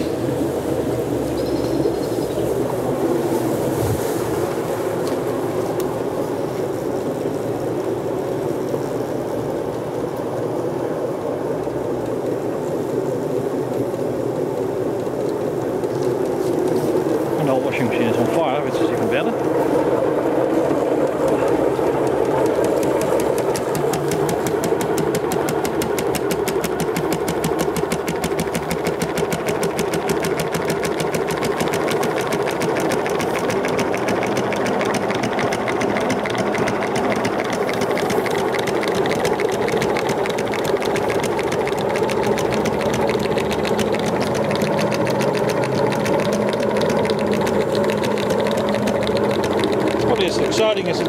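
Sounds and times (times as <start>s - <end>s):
washing machine drum rattling: 14.5s - 51.0s.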